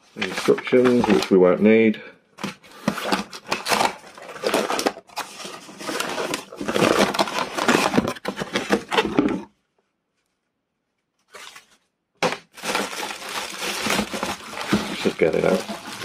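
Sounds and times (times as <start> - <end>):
plastic wrapping crinkling: 0.0 - 1.4, 2.5 - 9.2, 11.2 - 16.0
cardboard box rustling and scraping: 2.4 - 9.5, 12.6 - 16.0.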